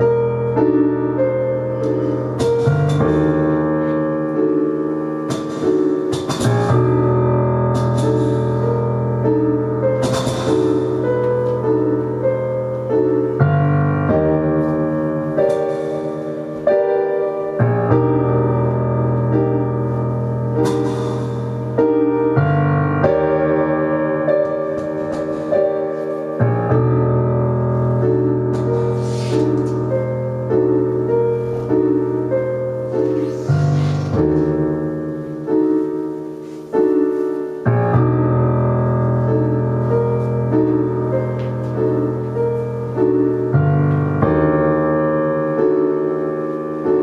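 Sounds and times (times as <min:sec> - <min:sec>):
brief hissing swells: 0:33.2 - 0:34.2.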